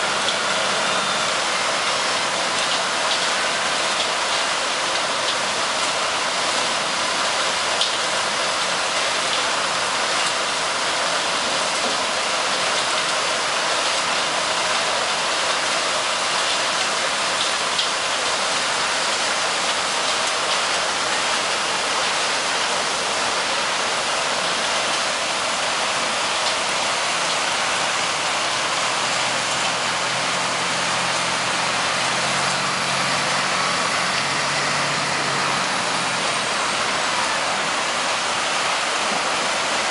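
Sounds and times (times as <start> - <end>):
wheel loader engine hum: 20.2 - 39.9.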